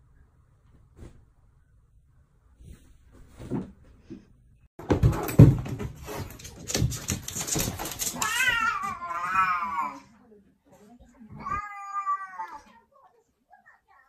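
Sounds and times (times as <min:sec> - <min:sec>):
cats scuffling on wooden floor: 0:05.0 - 0:09.3.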